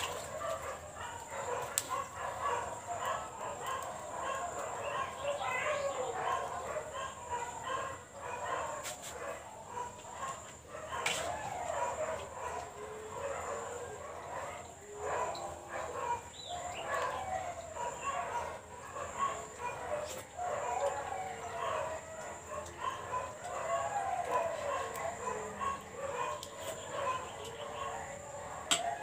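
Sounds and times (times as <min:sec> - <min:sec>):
domestic animals crying: 0:03.3 - 0:07.6.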